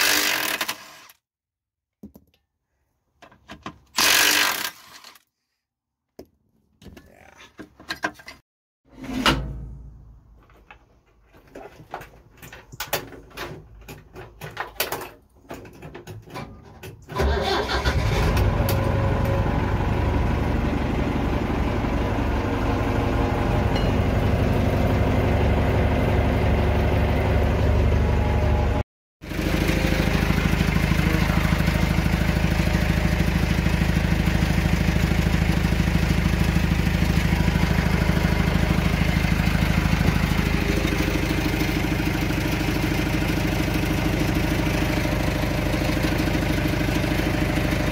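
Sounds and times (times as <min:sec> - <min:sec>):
machine engine starting and running: 0:17.1 - 0:47.9.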